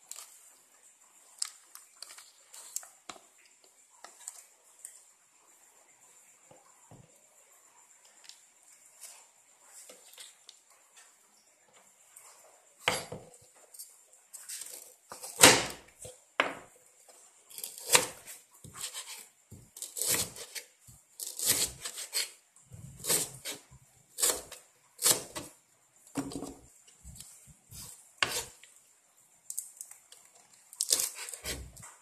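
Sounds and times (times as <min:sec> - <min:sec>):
knife chopping on plastic board: 0:15.1 - 0:16.6, 0:17.6 - 0:20.6, 0:21.2 - 0:23.6, 0:24.2 - 0:25.5, 0:26.2 - 0:26.6, 0:27.8 - 0:28.5, 0:30.8 - 0:31.8.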